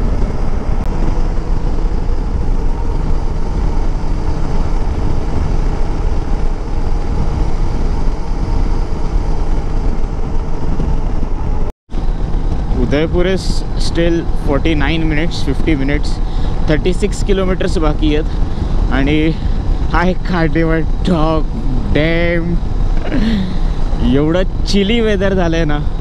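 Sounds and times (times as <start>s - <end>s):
motorcycle engine running: 0.0s - 26.0s
wind rush on microphone: 0.0s - 26.0s.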